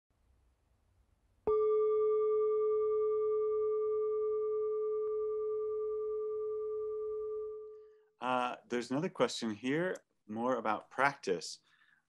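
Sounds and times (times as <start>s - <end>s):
singing bowl ringing: 1.5s - 8.1s.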